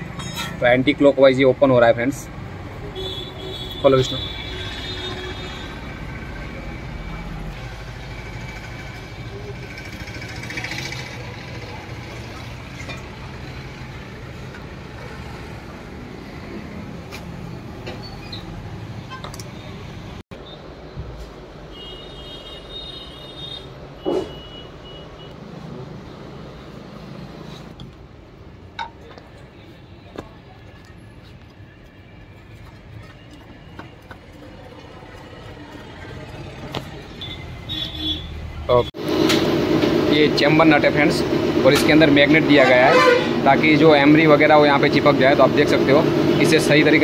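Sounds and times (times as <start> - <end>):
workshop background rumble: 0.0 - 24.6, 25.4 - 47.0
vehicle engine rumbling: 4.5 - 21.7.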